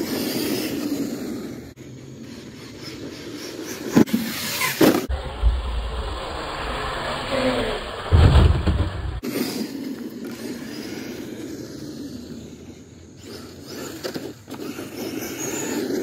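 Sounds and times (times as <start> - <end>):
rc truck motor whine: 0.0 - 16.0
thump of truck landing: 8.1 - 9.2.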